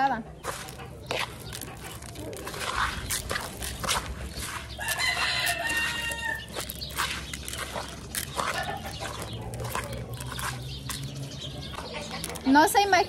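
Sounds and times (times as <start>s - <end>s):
hands kneading wet feed: 0.0s - 13.0s
rooster crowing: 4.8s - 6.5s.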